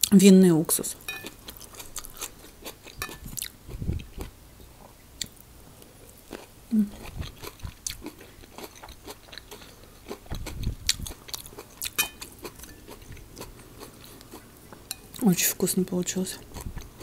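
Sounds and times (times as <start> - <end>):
fork clinking on plate: 1.1 - 1.4, 12.0 - 12.8
wet chewing and crunching: 1.1 - 5.4, 6.1 - 15.2, 16.4 - 17.0.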